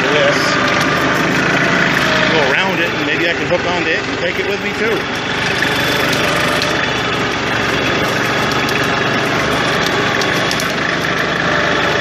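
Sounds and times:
tractor diesel engine running: 0.0s - 12.0s.

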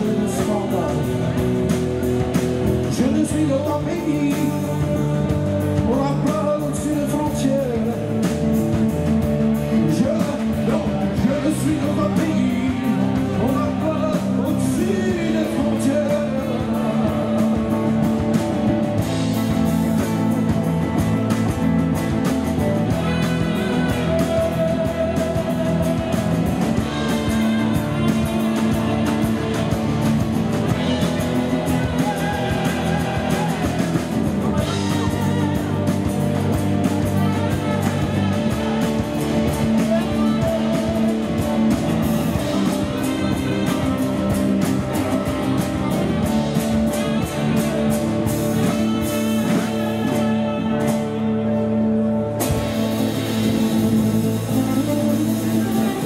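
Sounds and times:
man singing: 0.0s - 8.9s, 9.6s - 52.0s, 52.9s - 56.0s
bass: 0.0s - 56.0s
drums: 0.0s - 56.0s
electric guitars: 0.0s - 56.0s
saxophone: 20.9s - 56.0s.

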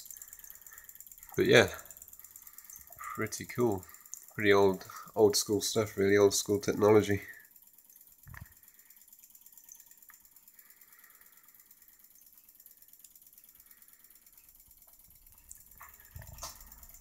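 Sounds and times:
solenoid engine clicking rapidly: 0.0s - 17.0s.

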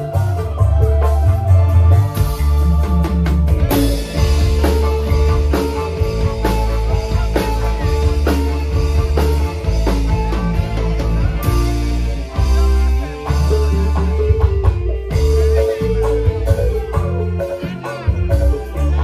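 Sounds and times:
live band playing instrumental: 0.0s - 19.0s.

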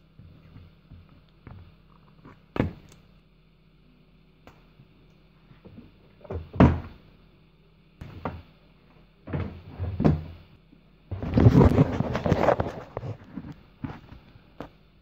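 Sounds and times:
cable clattering and rubbing: 11.1s - 14.0s.

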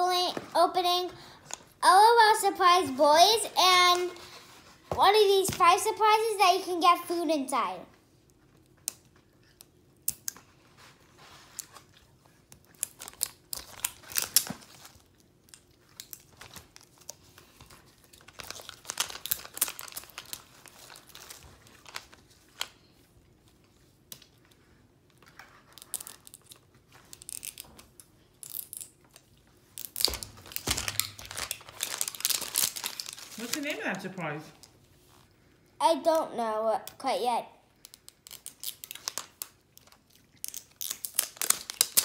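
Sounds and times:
plastic wrapping crinkling and tearing: 11.2s - 22.9s, 23.6s - 35.2s, 37.8s - 42.0s.

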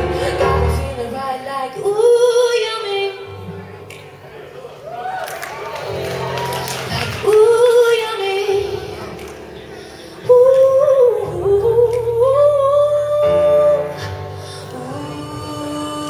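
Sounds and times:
electric keyboard chords: 0.0s - 2.0s
woman singing wordless notes: 0.0s - 3.8s, 6.9s - 16.0s.

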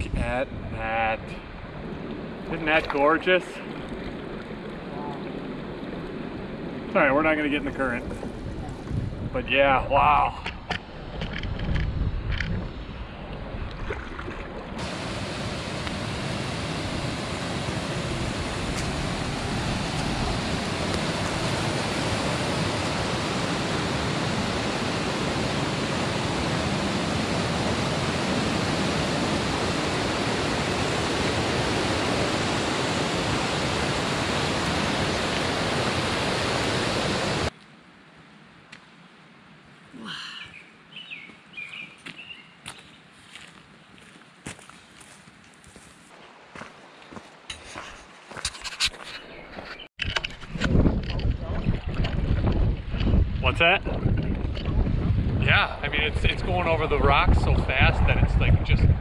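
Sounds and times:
canoe moving on water: 1.6s - 9.3s, 10.6s - 37.5s
footsteps on a trail: 41.1s - 49.9s.

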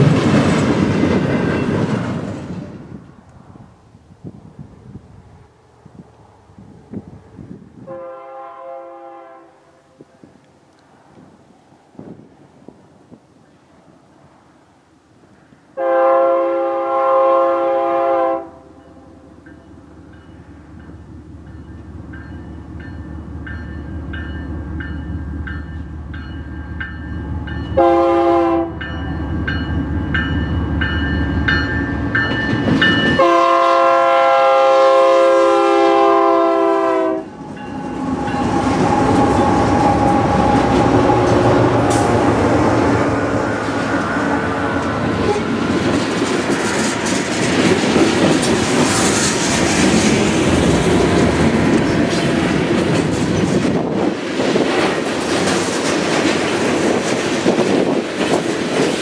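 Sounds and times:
train wheels clattering over rails: 0.0s - 2.8s, 43.5s - 59.0s
locomotive air horn blasts: 7.8s - 10.0s, 15.8s - 19.0s, 27.8s - 28.8s, 33.1s - 42.2s, 44.3s - 45.6s.

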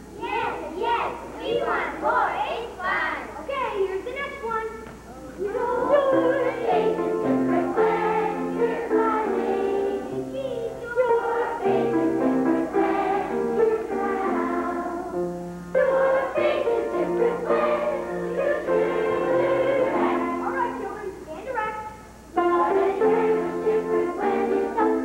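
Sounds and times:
children singing together: 0.0s - 3.2s, 5.4s - 20.8s, 22.4s - 25.0s.

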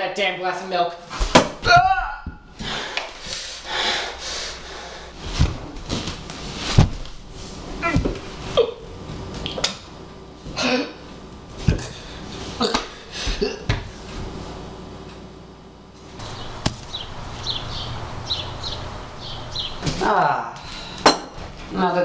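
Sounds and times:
knocks and thumps: 5.2s - 7.2s, 7.8s - 8.4s.

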